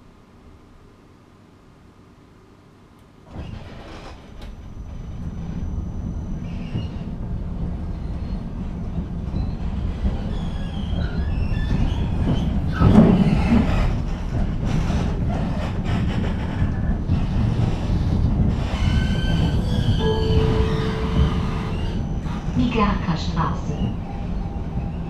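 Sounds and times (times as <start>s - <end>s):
tram wheels and motors rumbling: 0.0s - 25.0s
faint high wheel squeals: 18.7s - 22.6s.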